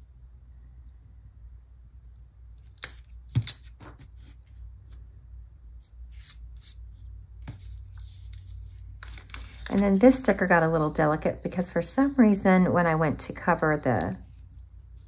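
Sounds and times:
low steady hum: 0:00.0 - 0:15.0
paper rustling: 0:07.5 - 0:10.4.

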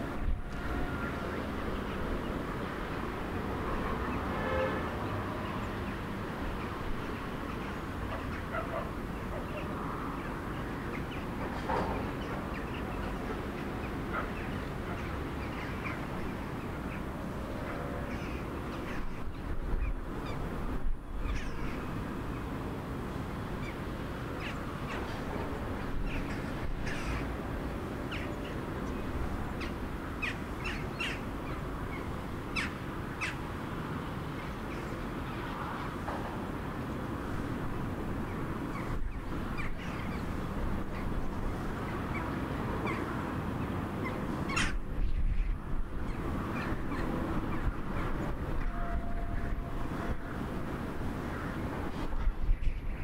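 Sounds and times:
birds calling: 0:23.6 - 0:33.5, 0:38.7 - 0:48.8.

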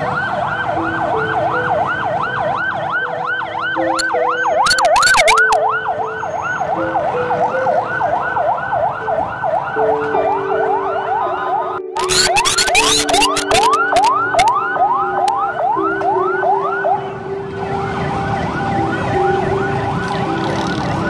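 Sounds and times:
siren wailing fast: 0:00.2 - 0:06.8, 0:10.7 - 0:17.0.

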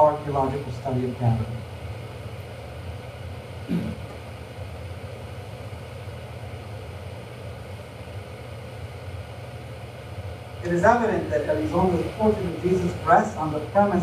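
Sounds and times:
room tone hum: 0:00.0 - 0:14.0
brief vocal sound: 0:03.7 - 0:04.0.

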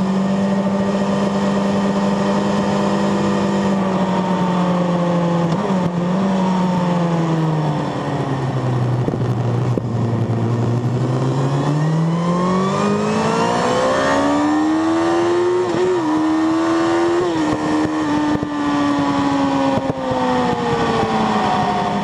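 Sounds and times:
motorcycle engine accelerating: 0:00.0 - 0:22.0
wind rush: 0:07.8 - 0:22.0.

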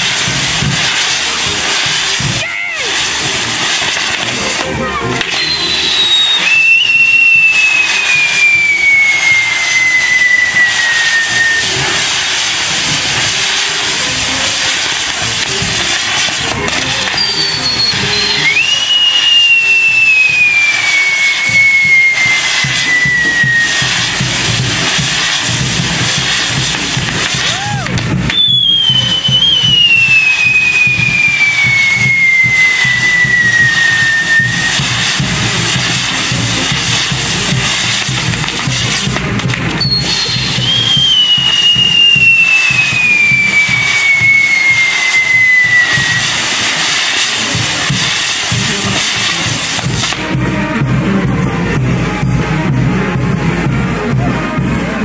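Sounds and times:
firework fountains hissing: 0:00.0 - 0:54.8
falling whistle: 0:04.6 - 0:12.2, 0:17.0 - 0:25.1, 0:27.4 - 0:36.9, 0:39.8 - 0:48.0.

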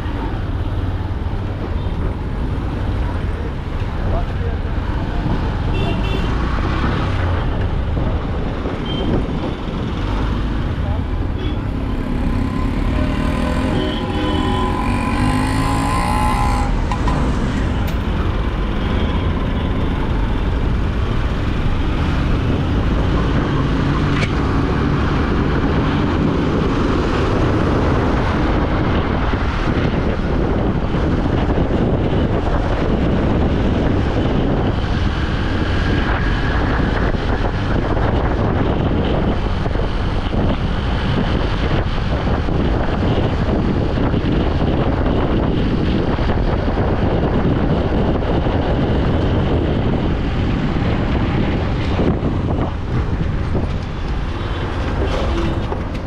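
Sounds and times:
wind and road noise: 0:00.0 - 0:56.0
motorcycle engine: 0:10.0 - 0:20.5.

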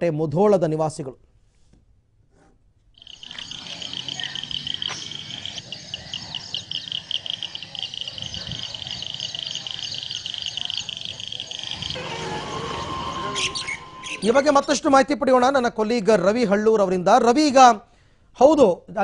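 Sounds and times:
insects chirping: 0:03.0 - 0:14.6.

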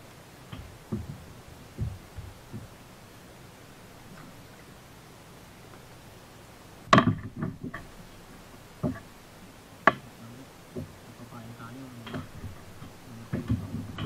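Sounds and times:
fishing gear knocking on kayak: 0:00.6 - 0:02.7.

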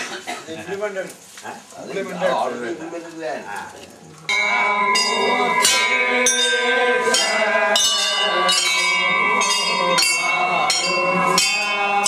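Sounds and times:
temple bells ringing: 0:04.3 - 0:12.0.

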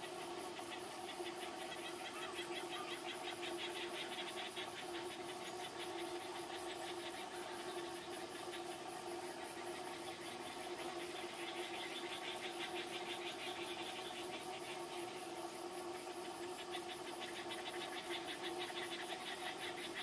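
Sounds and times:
low mechanical hum: 0:00.0 - 0:20.0.

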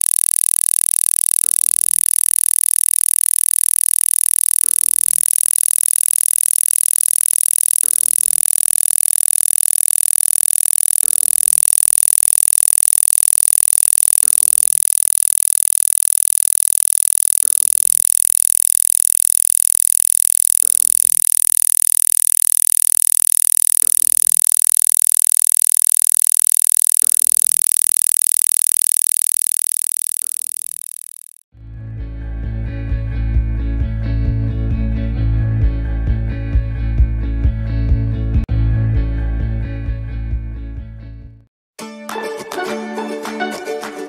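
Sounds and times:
buzzing pulse tone: 0:00.0 - 0:31.5.

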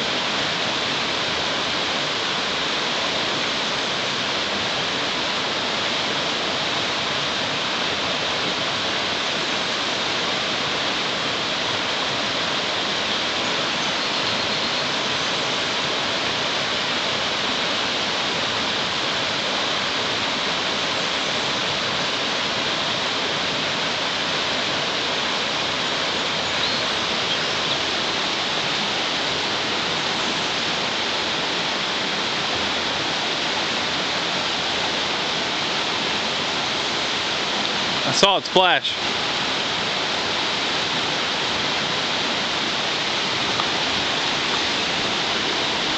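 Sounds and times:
stream rushing over rocks: 0:00.0 - 0:45.9.

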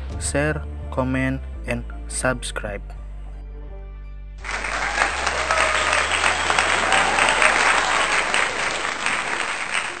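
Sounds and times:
crowd applause: 0:04.4 - 0:10.0.

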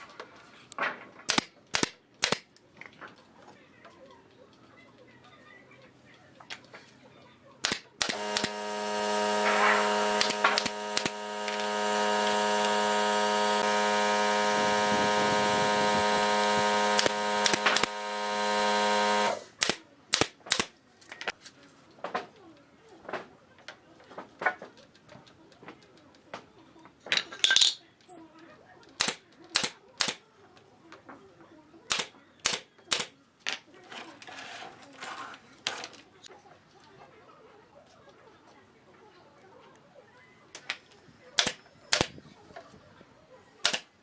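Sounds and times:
loud machine hum: 0:08.0 - 0:19.6.

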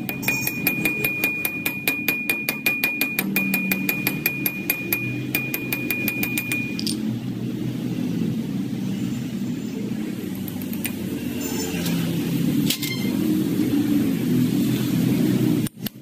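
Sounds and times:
light metal taps with ringing: 0:00.0 - 0:07.0.

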